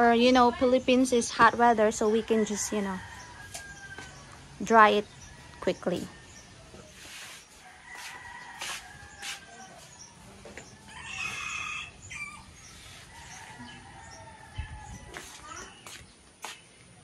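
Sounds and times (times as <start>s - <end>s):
rooster crowing: 2.3s - 4.4s, 7.6s - 10.2s, 10.8s - 15.3s.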